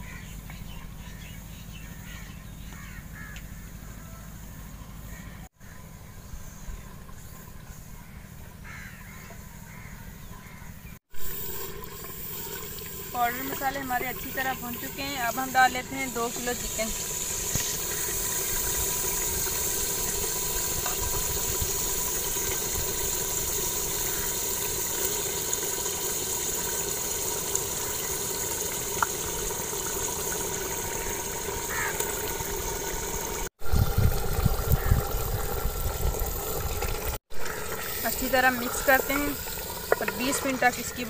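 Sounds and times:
food sizzling in oil: 11.1 - 41.0.

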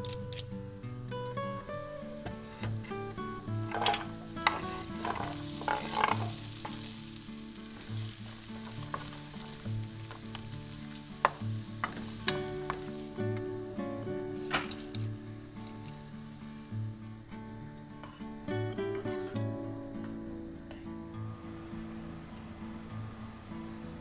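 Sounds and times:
vegetables sizzling in oil: 0.0 - 24.0
pieces clattering into pan: 2.2 - 13.5, 14.3 - 16.0, 18.0 - 20.9
wooden spoon scraping pan: 3.7 - 6.9, 8.6 - 10.2.

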